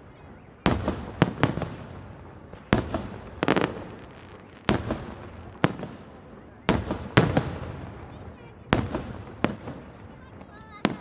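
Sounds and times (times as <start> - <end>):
firework shells bursting with echo: 0.6 - 10.2.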